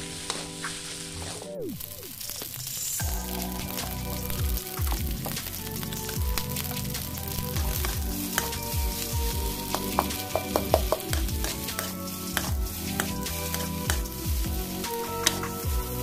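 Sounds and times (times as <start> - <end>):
background music: 0.0 - 16.0
rice sizzling in a wok: 0.0 - 16.0
metal spatula scraping a pan: 8.2 - 16.0.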